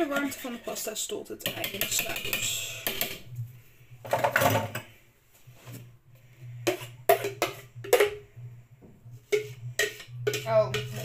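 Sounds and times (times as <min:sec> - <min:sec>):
bowl scraping: 0:00.0 - 0:01.0, 0:01.7 - 0:11.0
steady low hum: 0:02.2 - 0:11.0.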